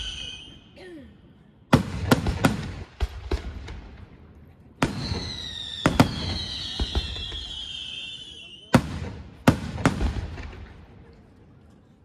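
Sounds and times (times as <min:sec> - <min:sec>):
fireworks bangs: 0:01.7 - 0:04.1, 0:04.8 - 0:11.0.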